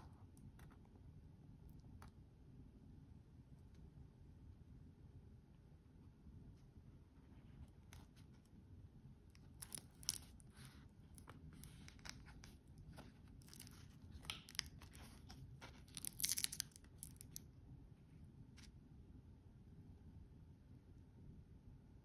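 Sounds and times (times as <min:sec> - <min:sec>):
plastic film crinkling: 0:09.4 - 0:17.4.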